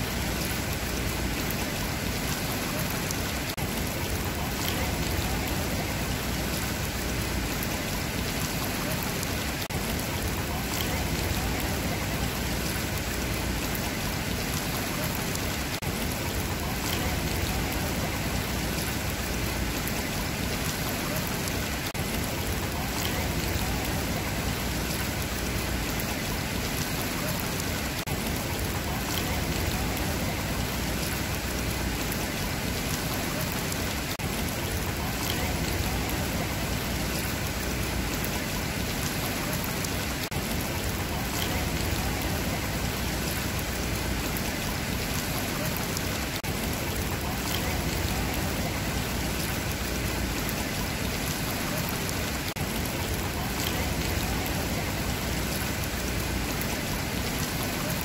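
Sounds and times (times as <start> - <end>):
pool water splashing and trickling: 0.0 - 58.0.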